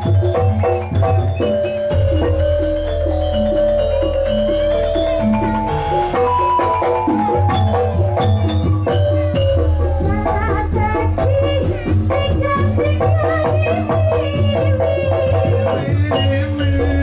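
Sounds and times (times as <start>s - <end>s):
gamelan music: 0.0s - 17.0s
steady low bass: 1.9s - 13.2s.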